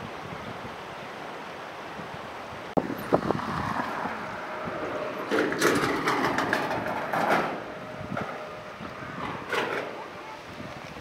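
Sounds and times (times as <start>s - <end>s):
train running on rails: 2.8s - 11.0s.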